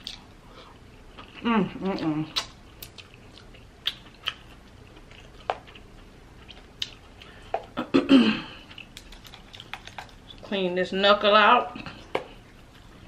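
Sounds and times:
wet mouth clicks of eating: 0:02.3 - 0:04.5
crab shell cracking and crunching: 0:08.6 - 0:10.4.

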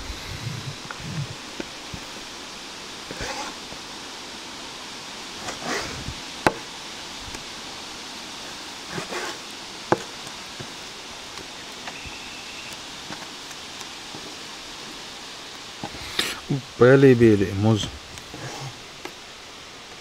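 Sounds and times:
steady outdoor hiss: 0:00.0 - 0:20.0
handling rustle: 0:08.4 - 0:19.3.

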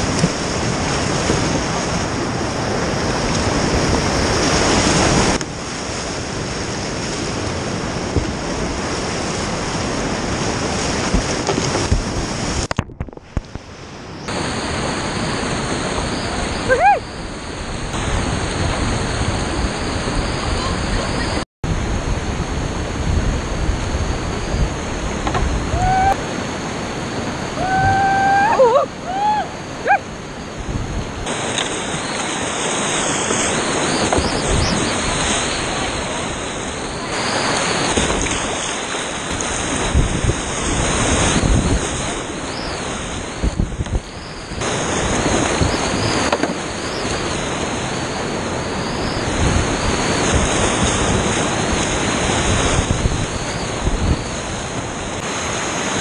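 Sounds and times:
wind buffeting microphone: 0:00.0 - 0:26.2, 0:27.1 - 0:56.0
high gliding voice calls: 0:16.0 - 0:17.4
river rapids rushing: 0:22.8 - 0:43.6.

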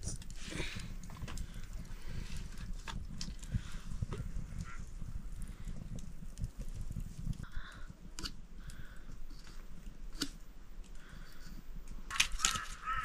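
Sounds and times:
harsh animal calls: 0:12.1 - 0:13.0.

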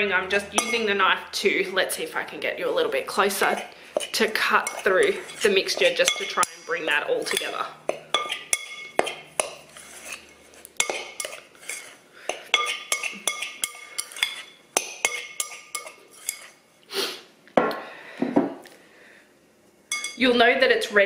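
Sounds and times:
knife scraping glass bowl: 0:03.3 - 0:16.6.

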